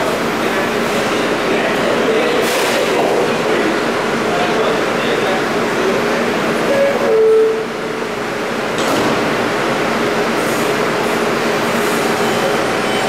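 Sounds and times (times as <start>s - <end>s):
stopped train humming: 0.0s - 2.4s, 3.0s - 13.0s
subway door chime: 6.6s - 8.2s, 12.0s - 13.0s
train doors sliding shut: 8.7s - 9.5s.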